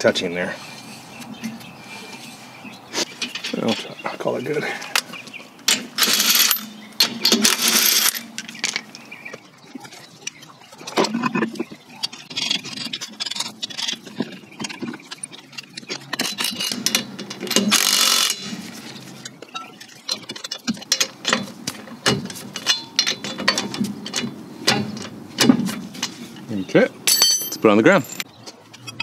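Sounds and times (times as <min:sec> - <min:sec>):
lug nuts clinking: 0:05.7 - 0:09.0, 0:12.3 - 0:29.0.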